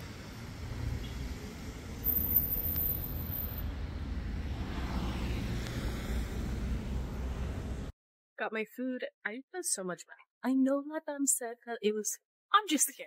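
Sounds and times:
car traffic passing: 0.0 - 7.9.

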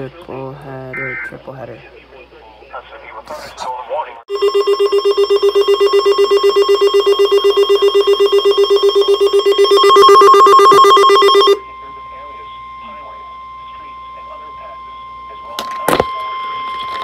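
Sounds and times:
rapid electronic alarm beeping: 4.3 - 17.0
faint steady tone: 4.4 - 17.0.

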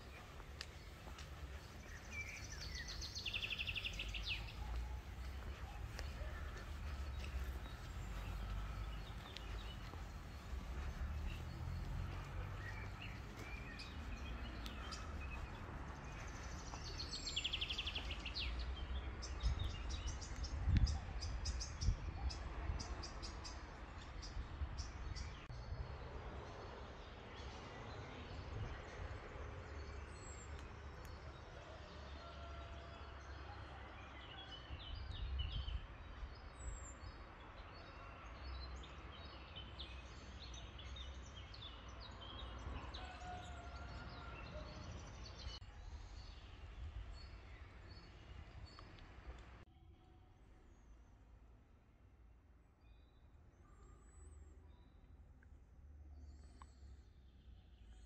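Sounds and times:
birds chirping and trilling: 0.0 - 23.8.

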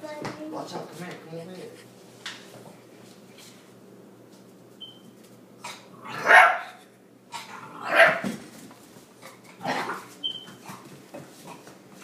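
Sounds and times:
small dog barking: 6.0 - 6.8, 7.8 - 8.2.

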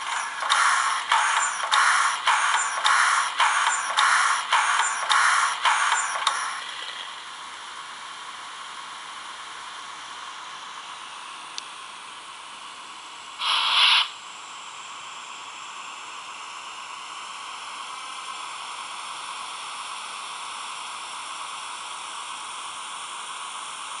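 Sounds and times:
model steam locomotive hissing: 0.0 - 7.0, 13.4 - 14.2.

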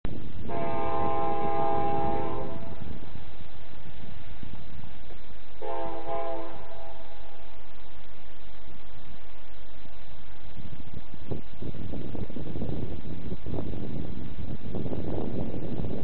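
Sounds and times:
diesel engines rumbling: 0.0 - 16.0
locomotive air horn blasts: 0.4 - 3.0, 5.6 - 7.4.

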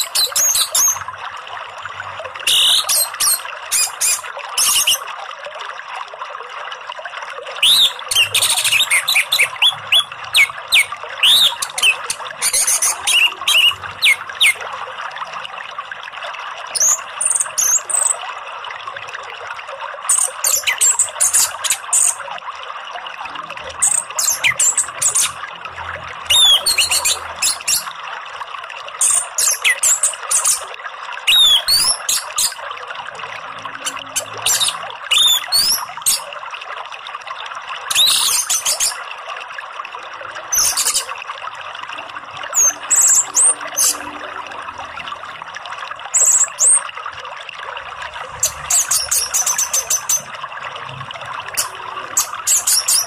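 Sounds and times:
flowing water: 0.0 - 53.0
bird singing high whistles: 2.5 - 5.0, 7.6 - 14.6, 26.3 - 27.9, 31.3 - 32.6, 34.5 - 35.9.

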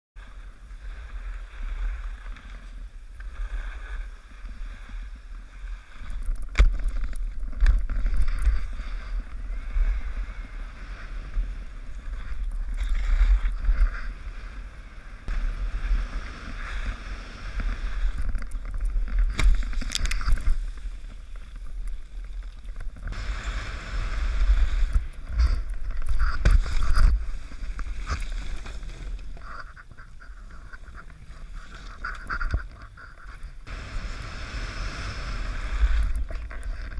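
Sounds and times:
wind buffeting camera: 0.6 - 36.9
sharp ski knocks: 18.8 - 20.8
skis hissing on snow: 23.1 - 25.6, 33.7 - 36.3.

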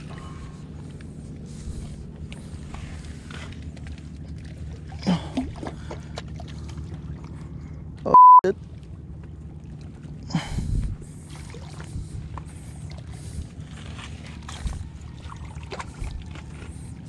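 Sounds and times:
steady low rumble: 0.0 - 17.0
knocks and splashes: 3.5 - 7.8, 8.6 - 16.9
censor bleep: 8.1 - 8.5.

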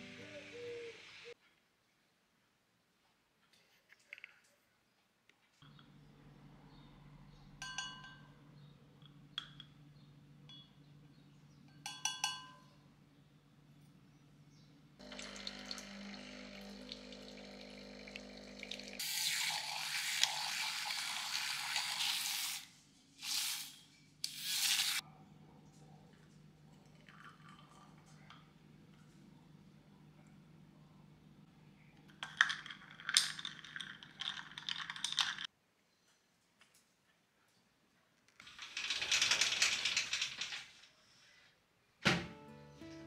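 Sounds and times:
water dispenser filling a jug: 15.0 - 22.2.

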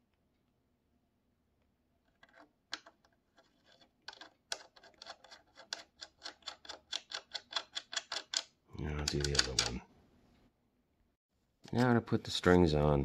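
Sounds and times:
metallic clicking of threaded stud: 4.1 - 9.8.

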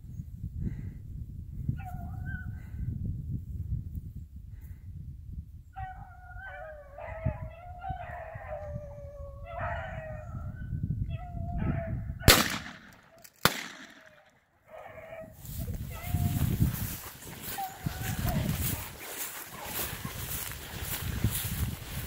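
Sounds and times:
gunshots: 12.3 - 14.3
dogs baying: 14.6 - 20.5.

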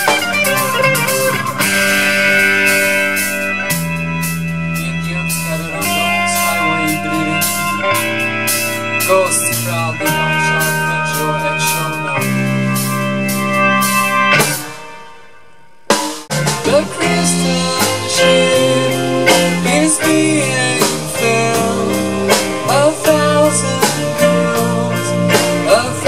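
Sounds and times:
cymbals keeping time: 0.0 - 26.0
rock band playing: 0.0 - 26.0
sustained keyboard chords: 0.0 - 26.0.

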